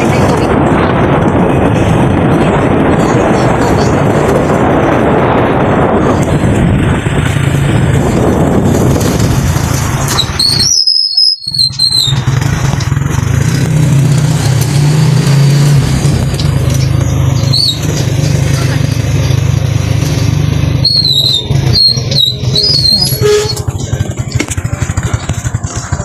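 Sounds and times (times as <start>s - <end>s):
road and wind noise: 0.0s - 26.0s
short high squeaks: 10.1s - 12.2s, 17.4s - 18.0s, 20.8s - 23.8s
small vehicle engine running: 11.5s - 26.0s.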